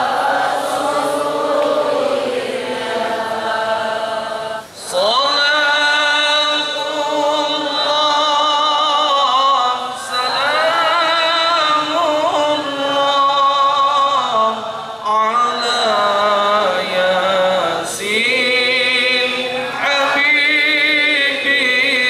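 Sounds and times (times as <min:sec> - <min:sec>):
man chanting melodic recitation: 0:04.7 - 0:22.0.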